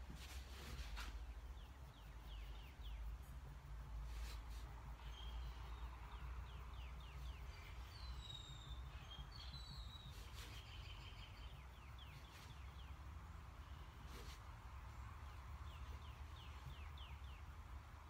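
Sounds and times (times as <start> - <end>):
faint birdsong: 0.0 - 18.0.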